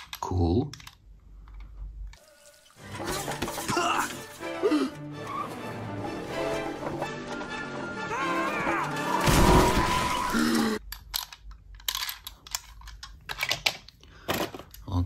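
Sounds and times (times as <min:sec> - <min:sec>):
cartoon soundtrack music: 0:02.8 - 0:10.8.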